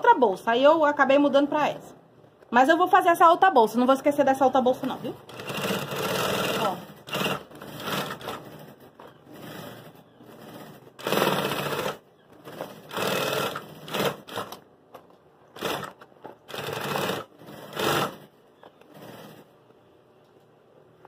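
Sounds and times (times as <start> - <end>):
sewing machine stitching: 4.8 - 14.6, 15.6 - 19.6.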